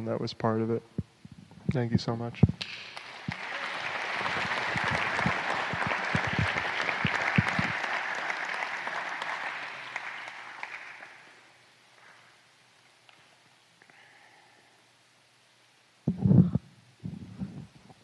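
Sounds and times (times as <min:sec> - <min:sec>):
audience applauding: 0:02.6 - 0:11.6.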